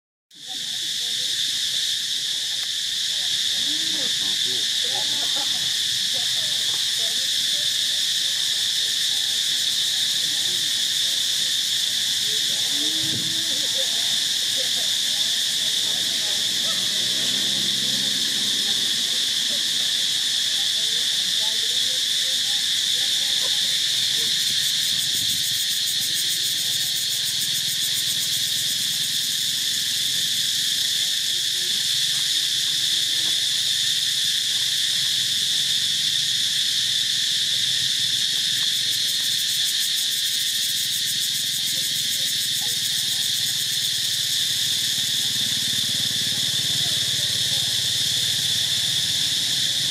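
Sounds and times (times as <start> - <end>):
insects chorus: 0.3 - 49.9.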